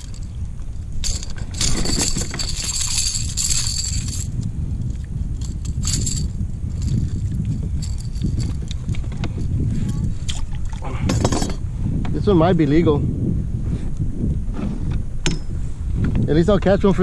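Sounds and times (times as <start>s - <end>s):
gear clinking and rattling: 0.0s - 10.4s, 11.1s - 11.6s
steady low rumble: 0.0s - 17.0s.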